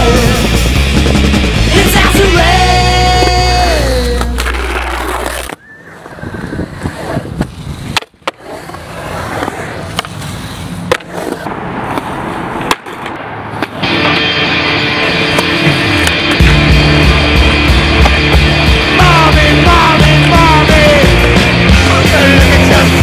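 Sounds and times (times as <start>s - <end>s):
rock song: 0.0s - 4.8s, 13.8s - 23.0s
skateboard wheels rolling on concrete: 0.0s - 23.0s
skateboard clacking on concrete: 3.1s - 6.1s, 6.7s - 14.3s.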